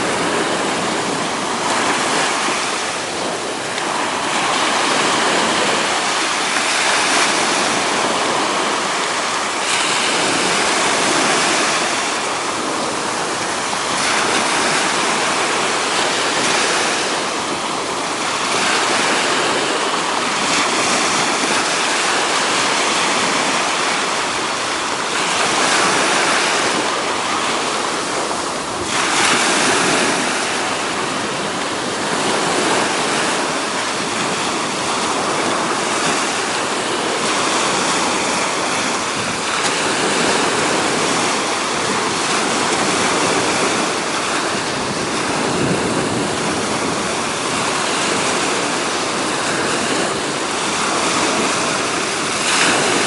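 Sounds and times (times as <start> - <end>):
ocean waves breaking: 0.0 - 53.0.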